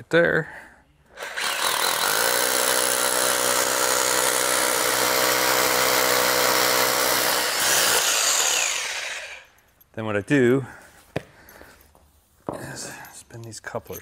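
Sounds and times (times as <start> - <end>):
rotary hammer drilling concrete: 1.2 - 9.6.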